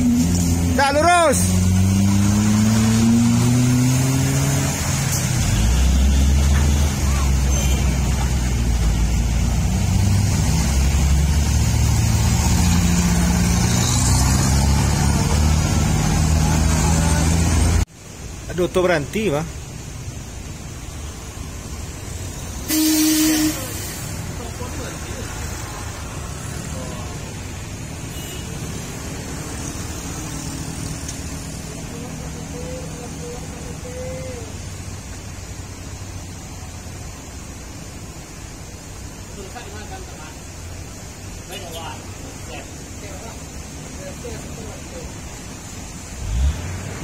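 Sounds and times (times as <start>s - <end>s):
truck engine climbing: 0.0s - 17.9s
cars driving past: 0.0s - 18.7s, 20.1s - 47.0s.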